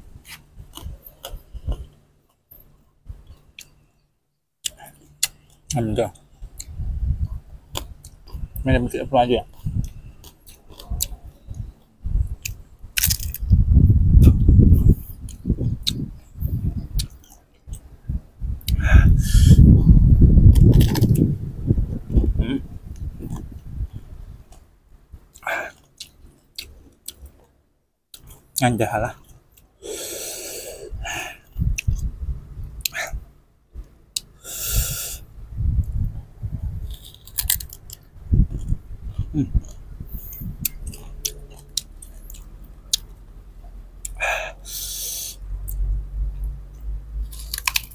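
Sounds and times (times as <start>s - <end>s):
chewing crisp mango: 9.5s - 13.5s, 14.2s - 17.8s, 20.5s - 21.3s, 25.3s - 28.6s, 36.6s - 44.2s, 46.8s - 47.9s
man blowing through pursed lips: 18.6s - 20.2s, 29.8s - 31.7s, 34.3s - 35.4s, 44.0s - 45.6s.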